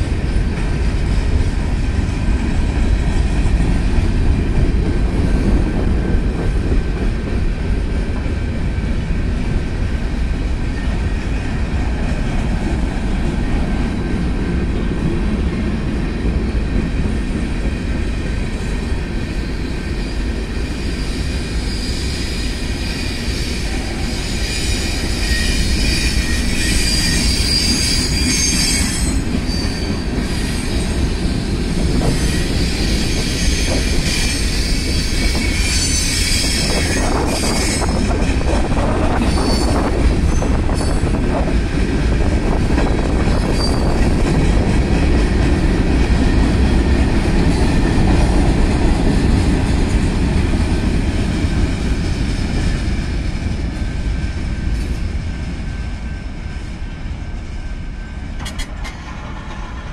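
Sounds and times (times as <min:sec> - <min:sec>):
freight train rumbling past: 0:00.0 - 0:59.9
high wheel squeal: 0:20.9 - 0:31.0, 0:31.8 - 0:38.2, 0:39.2 - 0:41.1, 0:43.3 - 0:44.1.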